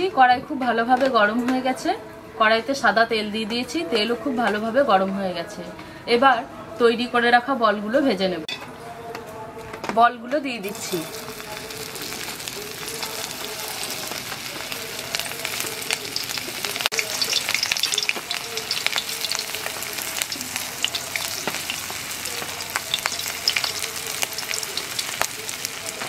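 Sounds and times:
deep-frying sizzle with pops: 10.6s - 26.0s.

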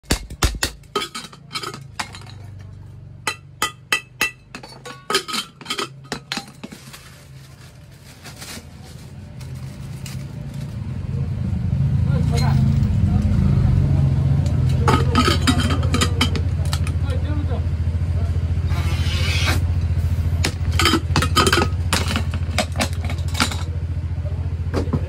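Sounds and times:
hammer striking metal: 3.2s - 5.7s.

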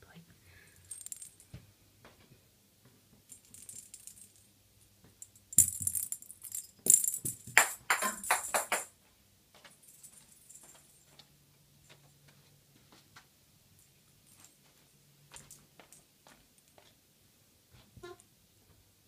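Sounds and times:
small jingle bell rattling: 0.7s - 1.5s, 3.3s - 4.5s, 5.2s - 8.9s, 9.7s - 11.2s.

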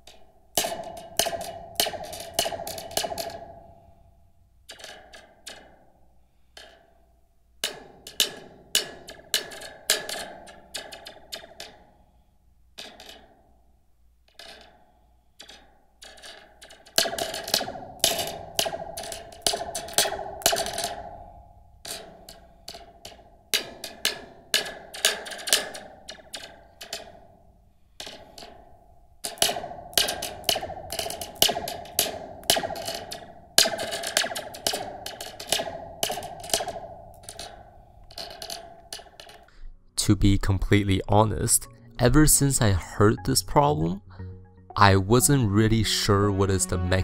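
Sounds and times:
pen tapping steel spring: 0.0s - 3.5s, 15.4s - 27.2s, 28.0s - 39.5s.

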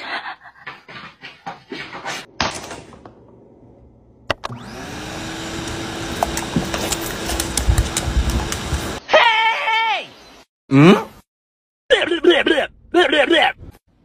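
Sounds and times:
electric motor whirring: 4.3s - 9.0s.

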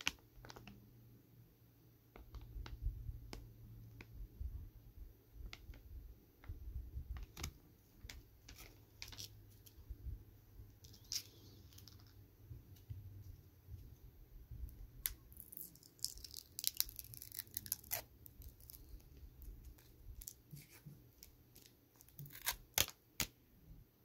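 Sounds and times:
plastic snack bag crinkling: 10.8s - 12.2s, 15.1s - 23.0s.

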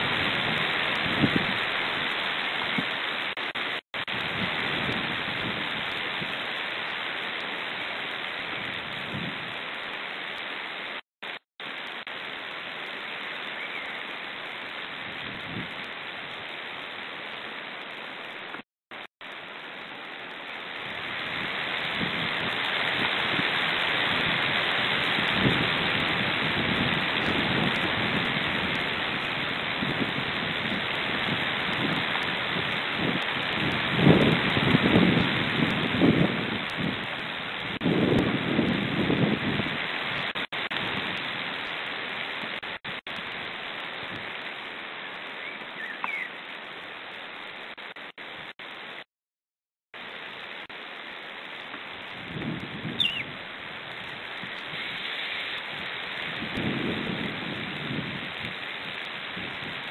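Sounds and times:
wind hiss on microphone: 0.0s - 10.7s, 11.7s - 17.3s, 20.3s - 48.4s, 51.5s - 59.9s
low gusty rumbles: 21.0s - 41.3s, 55.7s - 58.5s.

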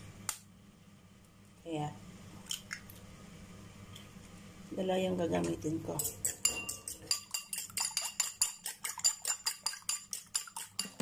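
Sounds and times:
fork clinking against ceramic bowl: 6.0s - 11.0s.

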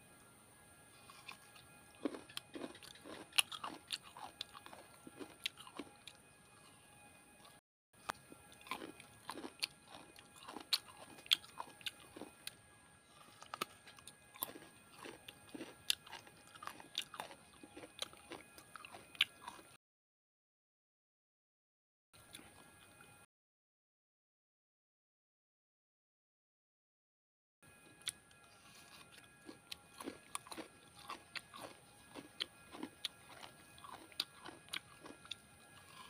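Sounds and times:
chewing coconut wet crunches: 1.0s - 6.8s, 7.4s - 12.6s, 13.2s - 19.8s, 27.7s - 36.0s.

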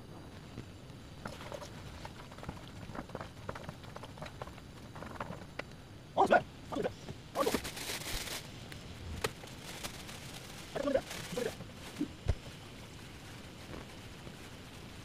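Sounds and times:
rustle: 0.2s - 15.0s.

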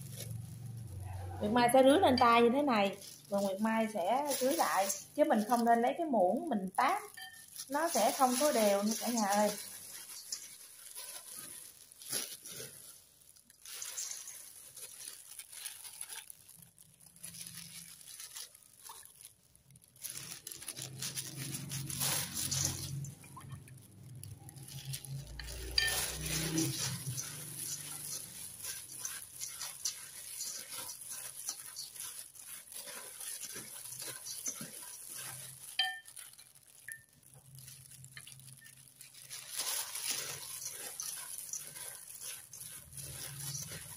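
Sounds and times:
rice flakes rustling in bowl: 0.0s - 43.9s.

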